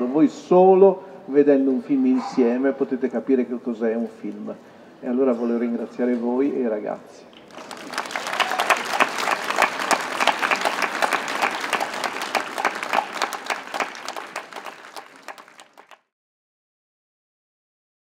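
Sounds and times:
audience applauding: 7.4 - 16.1.

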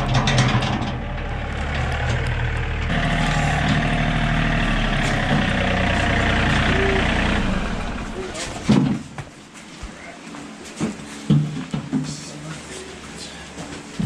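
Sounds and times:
tractor diesel engine running: 0.0 - 9.1.

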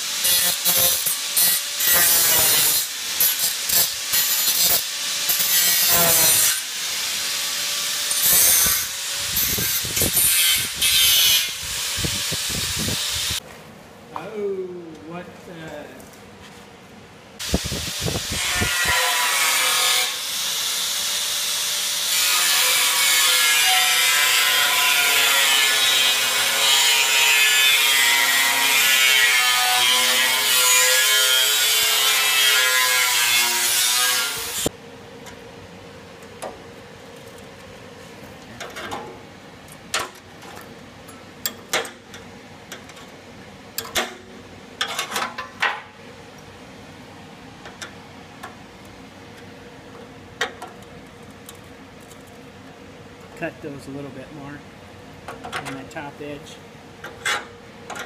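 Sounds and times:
angle grinder cutting steel: 0.0 - 13.4, 17.4 - 34.7.

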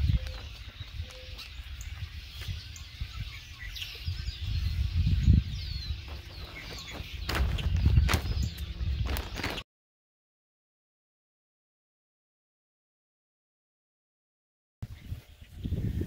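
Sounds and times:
birds chirping and calling: 0.0 - 9.6, 14.8 - 16.0.

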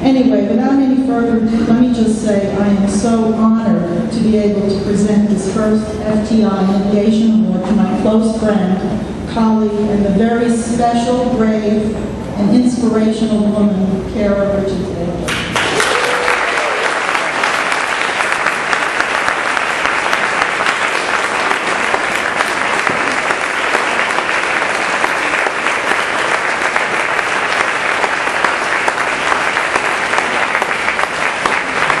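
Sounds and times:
audience clapping: 15.3 - 32.0.

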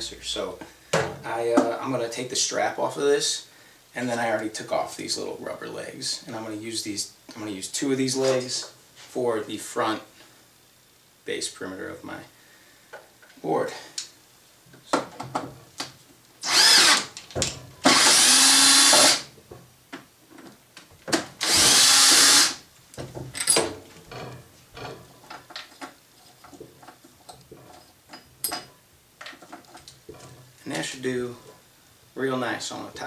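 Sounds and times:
cordless drill running: 16.4 - 17.1, 17.9 - 19.3, 21.4 - 22.6.

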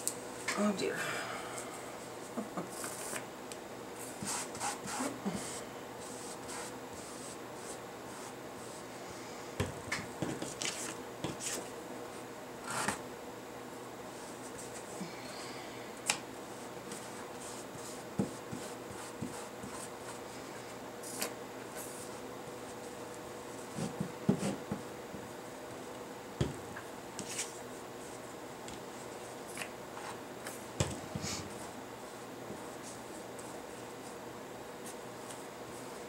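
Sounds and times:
faint hiss and hum: 0.0 - 36.0
brush tapping and rubbing paper: 16.9 - 19.9.

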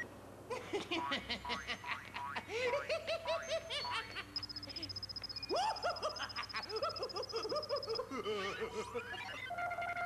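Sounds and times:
warbling electronic bleeps: 4.3 - 8.1
steady high electronic tone: 4.4 - 8.1.

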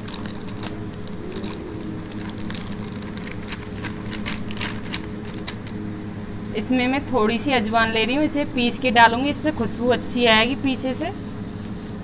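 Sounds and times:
plastic packet crinkling: 0.0 - 5.8
steady low hum: 0.0 - 12.0.

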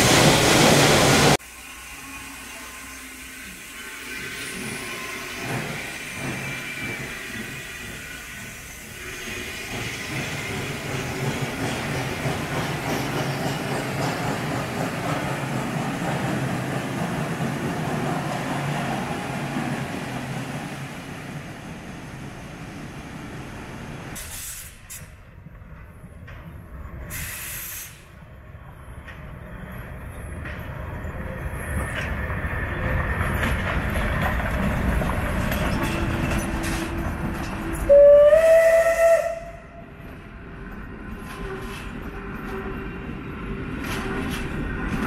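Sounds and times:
steam hissing from cylinders: 0.0 - 15.6, 23.7 - 25.2, 27.1 - 28.2
locomotive wheels and running gear: 29.0 - 38.0.

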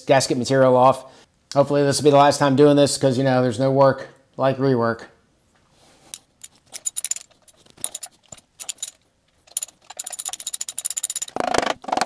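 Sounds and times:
metal tools clinking: 6.1 - 11.4.

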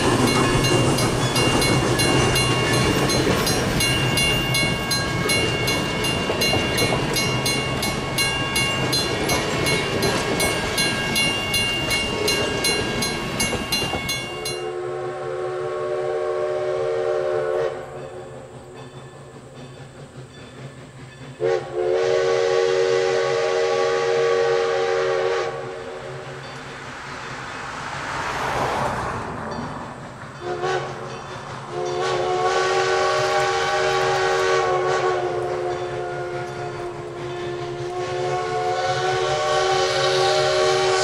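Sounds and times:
train wheels ticking over rails: 0.0 - 14.7, 17.5 - 41.0
distant steam whistle blasts: 14.4 - 18.6, 20.5 - 26.4, 30.4 - 41.0.

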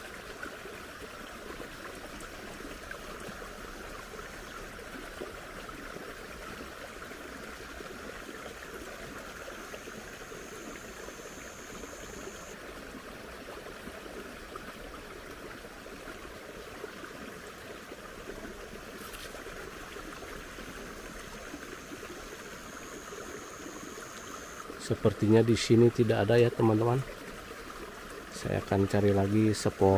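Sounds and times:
shallow water trickling: 0.0 - 29.9
thin high steady tone: 9.3 - 12.6, 20.4 - 27.0.

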